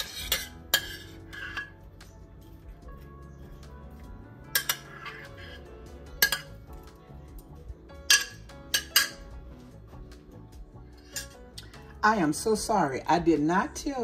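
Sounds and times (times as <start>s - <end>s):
metal spoon scraping ceramic dish: 0.0s - 1.8s, 4.5s - 6.6s, 8.1s - 9.2s, 11.0s - 11.4s
soft background music: 0.0s - 14.0s.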